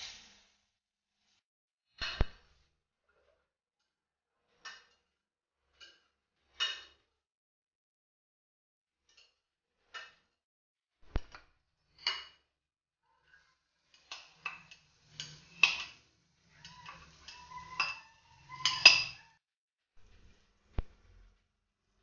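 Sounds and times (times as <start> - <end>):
spatula clinking on glass pan: 16.6 - 19.2.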